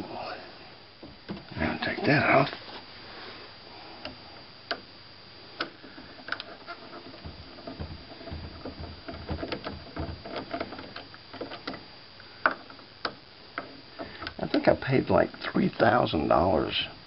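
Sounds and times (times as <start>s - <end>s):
rubbing and knocking: 6.0s - 11.8s.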